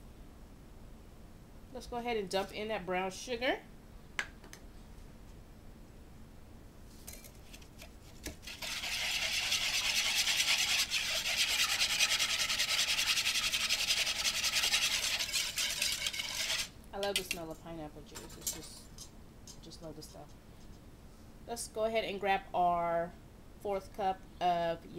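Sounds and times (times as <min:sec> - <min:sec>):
wire whisk scraping a bowl: 0:08.3 - 0:16.7.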